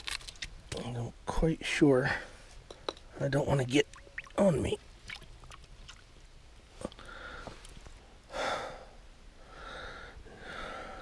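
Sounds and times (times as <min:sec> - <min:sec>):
person breathing: 0:06.8 - 0:11.0.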